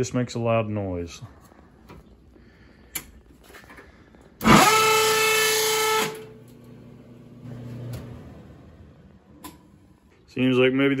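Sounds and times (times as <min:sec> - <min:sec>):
dryer high-pitched squeal: 0:04.4 - 0:06.3.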